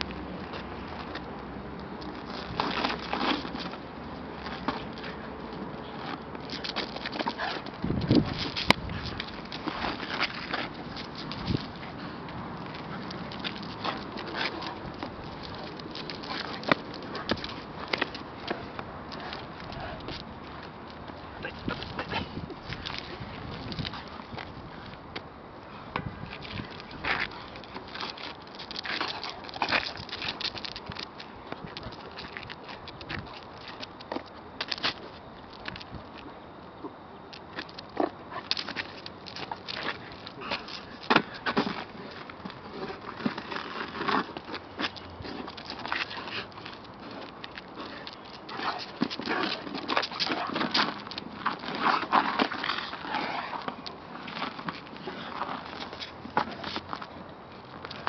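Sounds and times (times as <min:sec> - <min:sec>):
dog's feet pattering: 0:00.0 - 0:25.0, 0:26.2 - 0:36.3, 0:37.3 - 0:58.0
paws scrabbling on asphalt: 0:00.0 - 0:58.0
rubber tyre scraping: 0:02.0 - 0:25.0, 0:38.0 - 0:57.2.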